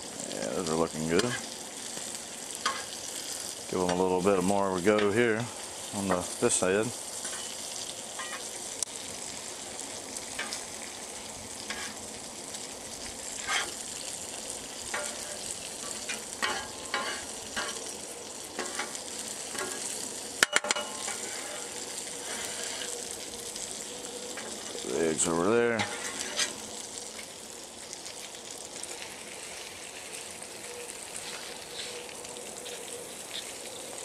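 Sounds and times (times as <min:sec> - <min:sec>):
food sizzling in oil: 0:00.0 - 0:34.0
metal spatula scraping griddle: 0:01.1 - 0:01.5, 0:02.6 - 0:03.0, 0:10.4 - 0:10.6, 0:11.6 - 0:12.0, 0:13.4 - 0:13.8, 0:14.9 - 0:17.9, 0:18.6 - 0:23.1, 0:25.7 - 0:26.6.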